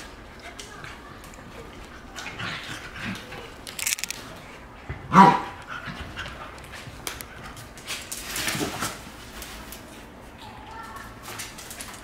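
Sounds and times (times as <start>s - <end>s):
dogs scuffling in play: 5.2s - 12.0s.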